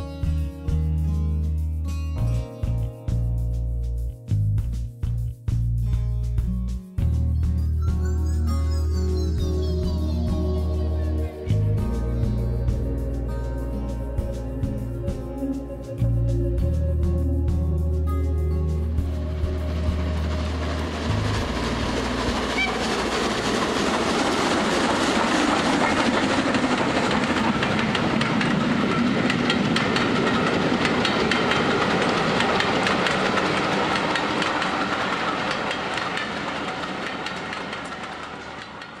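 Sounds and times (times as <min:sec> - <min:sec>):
train wheels clickety-clack: 0:19.2 - 0:39.0.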